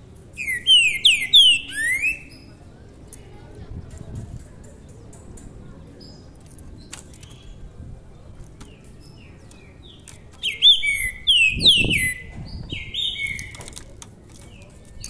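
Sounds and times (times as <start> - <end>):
songbird singing whistled phrases: 0.4 - 2.5, 8.7 - 13.6
faint clicks: 3.1 - 7.5.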